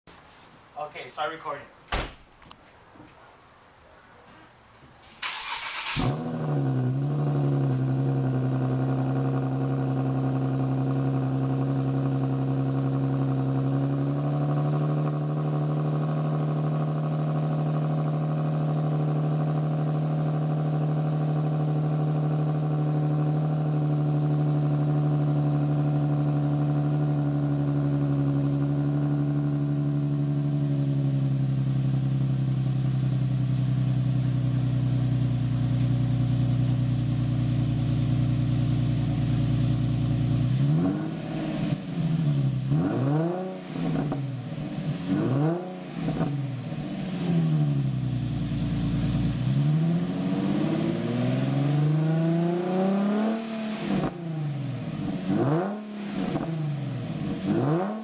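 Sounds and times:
loud car engine idling: 0:05.6 - 0:42.8, 0:45.7 - 0:50.8.

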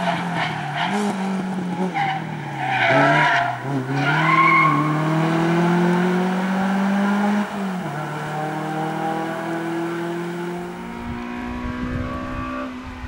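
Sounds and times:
tyres squealing: 0:02.0 - 0:05.0.

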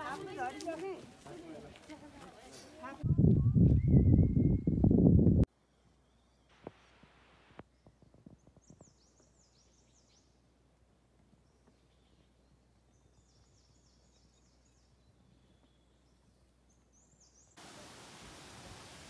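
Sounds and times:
steady hiss: 0:17.6 - 0:19.0.

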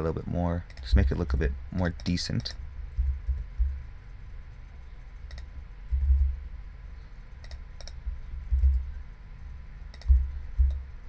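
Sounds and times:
keyboard and mouse clicks: 0:00.7 - 0:03.7, 0:05.2 - 0:06.3, 0:07.4 - 0:08.9, 0:09.9 - 0:10.8.

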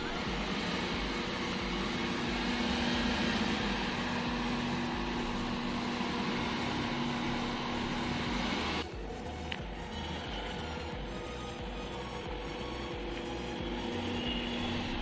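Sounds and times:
car engine passing slowly: 0:00.0 - 0:08.8.

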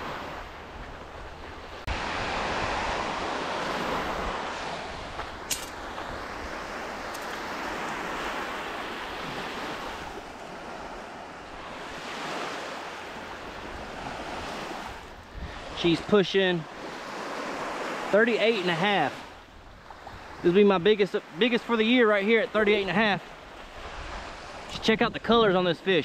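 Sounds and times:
waves breaking on beach: 0:00.0 - 0:26.0
wind on microphone: 0:13.6 - 0:15.8.

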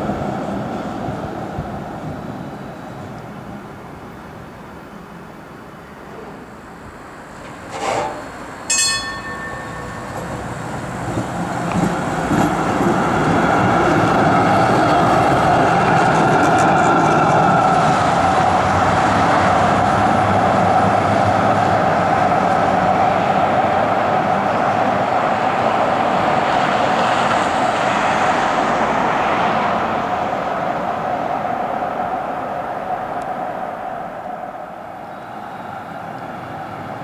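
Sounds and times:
tram wheels whining on rails: 0:00.0 - 0:37.0
short ringing tone: 0:08.7 - 0:10.9.

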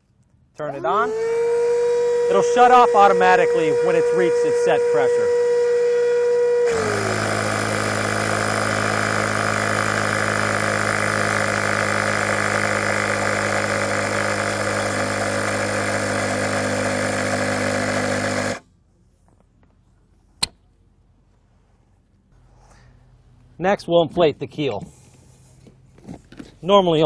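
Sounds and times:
electric pump running: 0:00.6 - 0:18.6.

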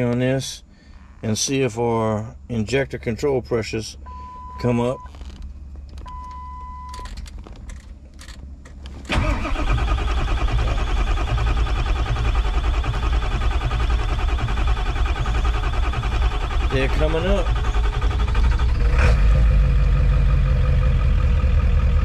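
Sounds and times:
starter cranking diesel engine: 0:09.1 - 0:22.0.

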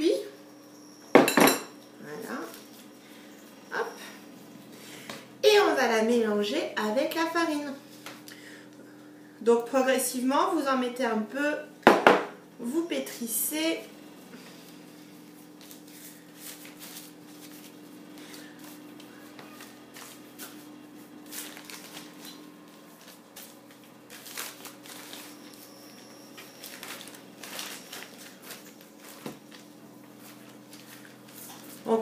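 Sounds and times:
parchment paper crinkling: 0:15.2 - 0:32.0.

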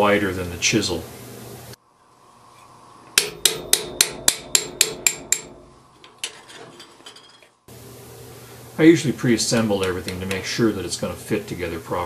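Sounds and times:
hammer striking metal chisel: 0:03.2 - 0:07.4.

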